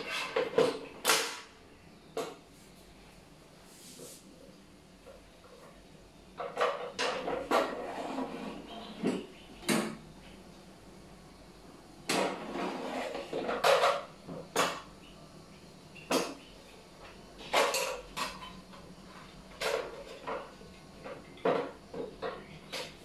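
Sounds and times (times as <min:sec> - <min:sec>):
drawer scraping: 0:07.1 - 0:09.2, 0:12.3 - 0:13.9.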